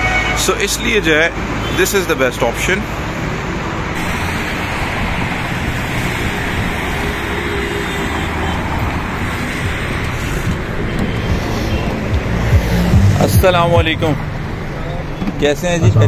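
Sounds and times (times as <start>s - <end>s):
heavy highway traffic: 0.0s - 16.0s.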